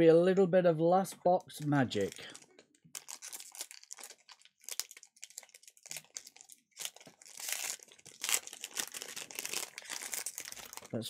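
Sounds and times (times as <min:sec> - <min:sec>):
foil wrapper tearing and crinkling: 0:02.0 - 0:11.0.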